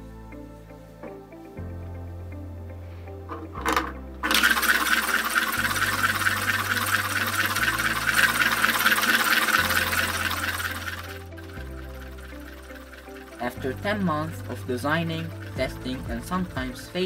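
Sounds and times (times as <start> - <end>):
high-pitched electromagnetic whir: 4.2 - 17.0.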